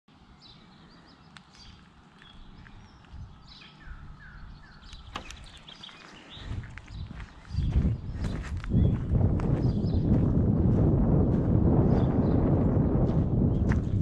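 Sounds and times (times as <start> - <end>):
small birds chirping: 0.1 - 10.4
sharp clicks: 4.8 - 5.7
low steady rumble: 6.5 - 14.0.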